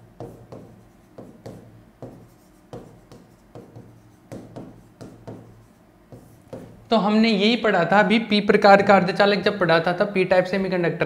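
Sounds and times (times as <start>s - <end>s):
pen ticking and scratching on screen: 0.0s - 6.8s.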